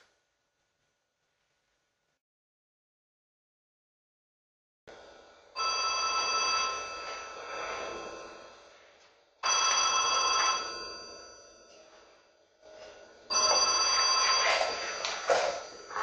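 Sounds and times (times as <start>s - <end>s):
telephone bell ringing: 5.6s - 8.4s, 9.4s - 11.8s, 13.3s - 16.0s.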